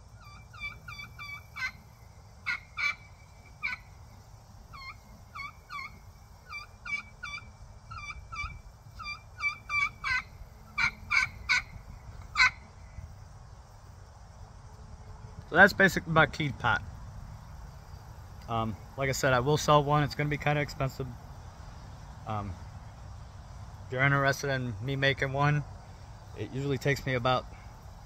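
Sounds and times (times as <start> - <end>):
sharp turkey call yelps: 0.0 - 4.0, 4.6 - 12.8
whistled turkey call notes: 0.2 - 1.8, 2.4 - 3.9, 4.7 - 12.7.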